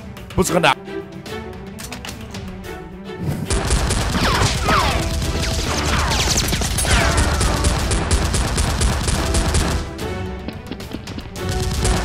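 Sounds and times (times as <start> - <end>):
rapid gunfire sound effects: 3.5 - 10.0, 11.3 - 12.0.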